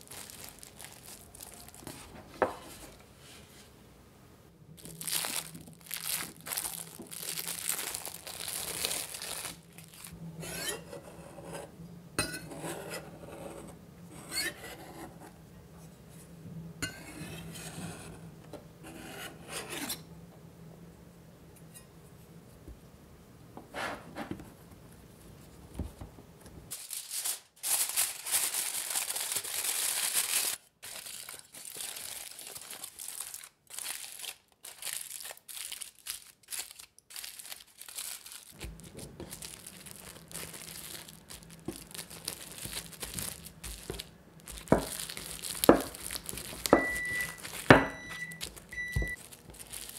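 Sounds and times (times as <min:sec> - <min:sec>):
aluminium foil crinkling: 0:00.0 - 0:03.0, 0:04.8 - 0:10.2, 0:26.7 - 0:49.9
knife scraping pastry: 0:10.4 - 0:15.4, 0:16.8 - 0:18.2, 0:18.8 - 0:20.0
cling film rustling: 0:36.5 - 0:49.9.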